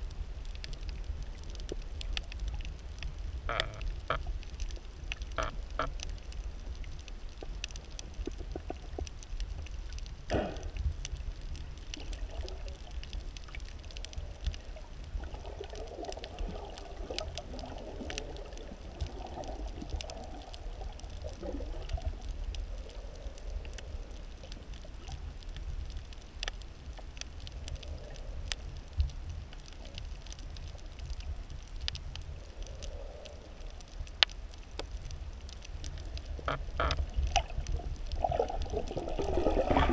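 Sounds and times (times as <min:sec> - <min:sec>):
muffled gurgling: 0:00.0 - 0:25.9, 0:36.0 - 0:39.9
low underwater rumble: 0:00.0 - 0:39.9.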